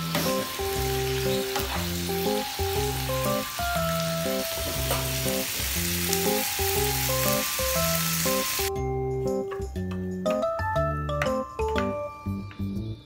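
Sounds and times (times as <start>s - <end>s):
food sizzling in a frying pan: 0.0s - 8.7s
background music: 0.0s - 13.0s.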